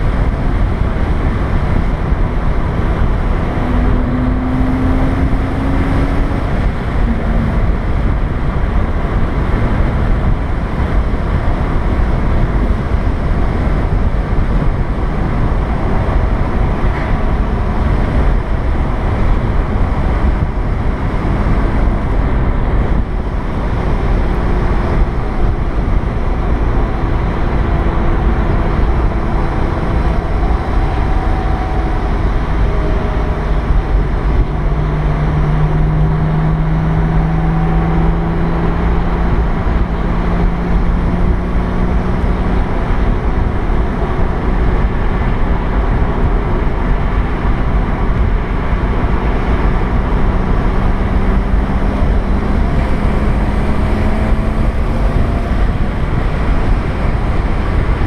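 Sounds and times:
car engine humming: 0.0s - 58.0s
road and wind noise: 0.0s - 58.0s.

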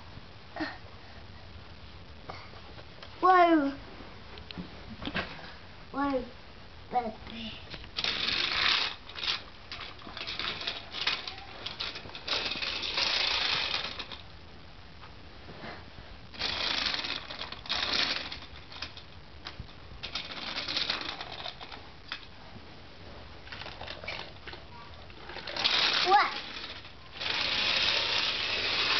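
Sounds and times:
toy train rattling on plastic track: 8.0s - 14.2s, 16.3s - 19.1s, 20.0s - 22.3s, 23.5s - 28.9s.

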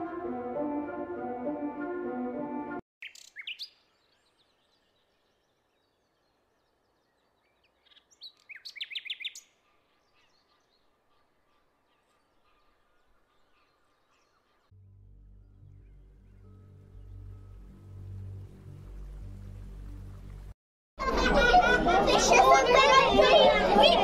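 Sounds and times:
songbirds chirping: 3.0s - 20.5s.

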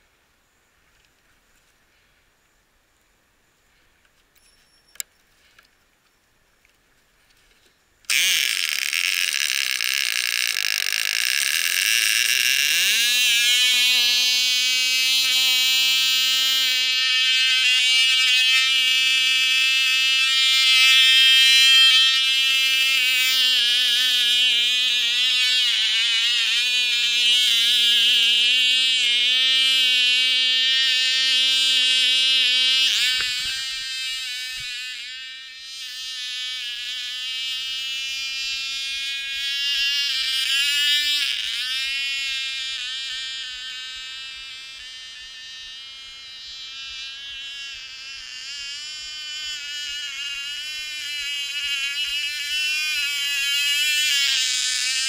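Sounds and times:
model plane engine whining: 8.1s - 55.0s.

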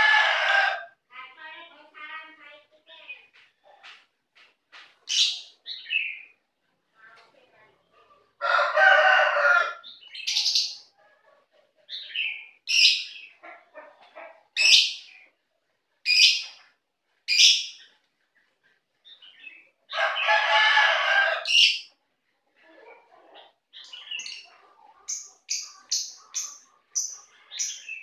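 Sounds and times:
lovebirds chirping: 1.5s - 7.2s, 9.8s - 11.2s, 11.8s - 15.4s, 16.0s - 20.3s, 23.2s - 28.0s.

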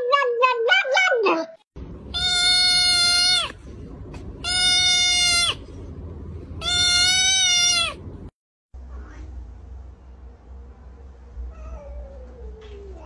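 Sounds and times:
kitten yowling: 2.2s - 3.6s, 4.4s - 5.6s, 6.6s - 8.0s.

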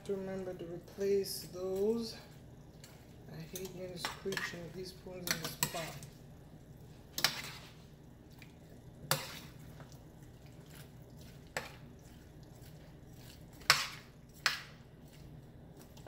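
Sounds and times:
metal spoon scraping a pan: 2.8s - 6.1s, 7.1s - 7.9s, 9.0s - 9.6s, 12.6s - 15.3s.

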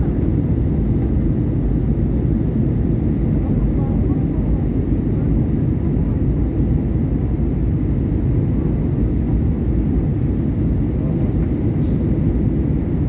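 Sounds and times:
jet engines rumbling in cabin: 0.0s - 13.0s.

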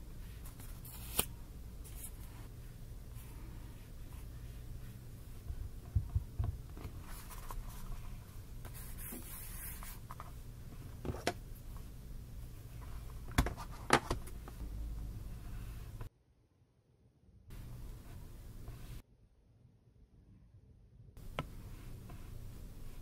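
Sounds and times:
low steady hum: 0.0s - 16.1s, 17.4s - 23.0s
notebook page rustling: 0.2s - 5.4s, 6.6s - 10.4s.

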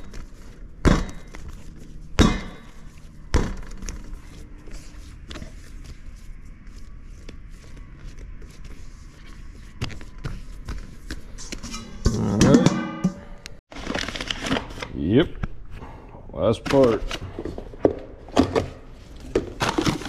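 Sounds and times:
dough handling noise: 0.0s - 11.6s.

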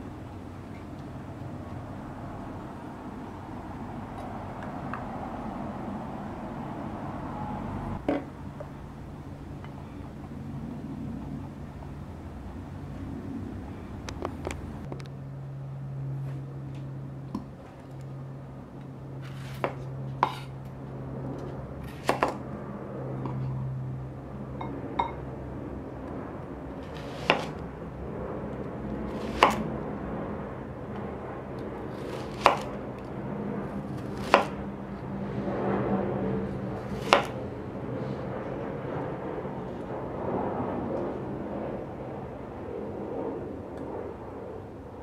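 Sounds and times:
knife chopping on cutting board: 26.9s - 27.6s, 29.2s - 29.6s, 32.0s - 32.7s, 34.1s - 34.6s, 37.0s - 37.3s.

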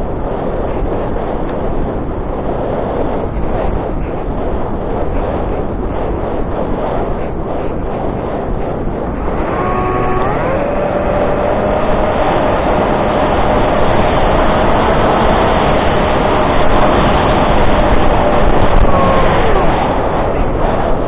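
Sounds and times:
wind rushing: 0.0s - 21.0s
electric motor whine: 9.2s - 13.8s, 18.7s - 20.0s.

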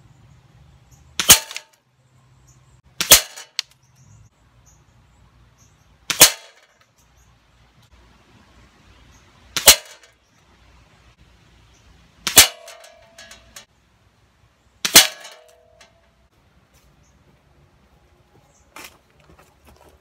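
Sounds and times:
air rifle sharp crack: 1.2s - 1.8s, 3.0s - 3.7s, 6.1s - 6.7s, 9.6s - 10.1s, 12.3s - 13.0s, 14.8s - 15.6s
pellet striking metal target: 1.2s - 1.8s, 3.0s - 3.7s, 6.1s - 6.8s, 9.6s - 10.2s, 12.2s - 13.7s, 14.8s - 16.0s.

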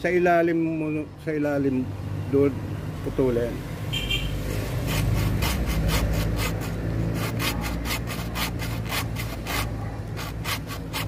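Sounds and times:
hand saw cutting wood: 4.5s - 11.0s.

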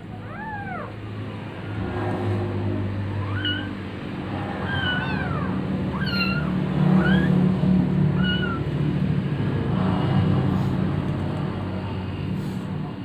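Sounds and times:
kittens mewing: 0.0s - 1.1s, 1.8s - 8.8s.

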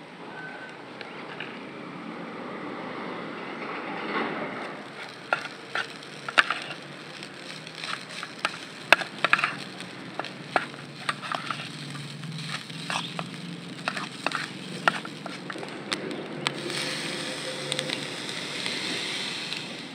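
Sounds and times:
metal spoon scraping metal pan: 4.8s - 17.2s.

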